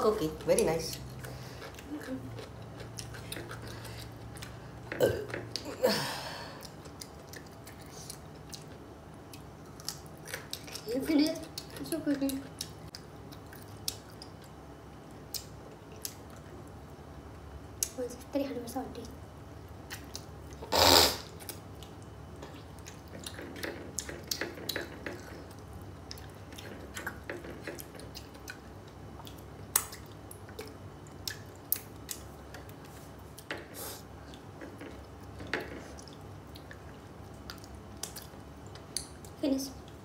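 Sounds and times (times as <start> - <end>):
chewing and mouth clicks: 0.6 - 4.6, 6.6 - 14.6, 19.8 - 20.6, 21.4 - 33.5, 34.2 - 40.0.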